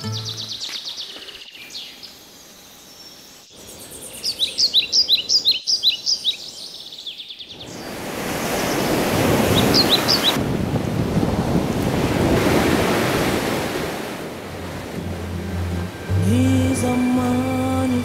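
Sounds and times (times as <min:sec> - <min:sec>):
birds trilling and chirping: 0:00.0 - 0:10.4
ocean surf: 0:07.8 - 0:18.0.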